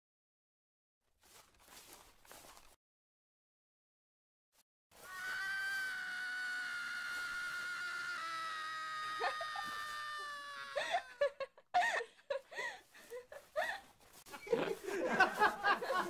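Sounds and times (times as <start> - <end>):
long high wail: 5.0 - 11.3.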